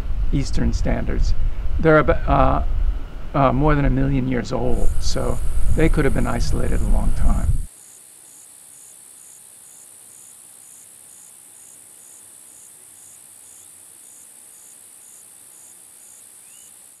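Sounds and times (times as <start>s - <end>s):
crickets trilling: 3.4s - 17.0s
pulsing insect call: 3.4s - 17.0s.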